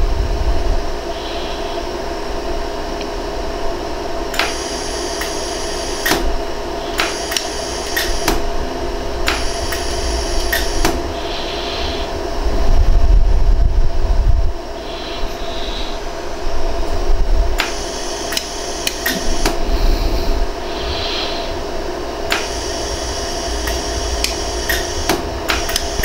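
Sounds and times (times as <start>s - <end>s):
low rumble: 0.0s - 2.7s, 8.4s - 17.6s, 19.2s - 26.0s
machine humming: 0.0s - 26.0s
laser welder clicks: 4.3s - 8.5s, 9.2s - 11.1s, 17.6s - 19.6s, 22.3s - 26.0s.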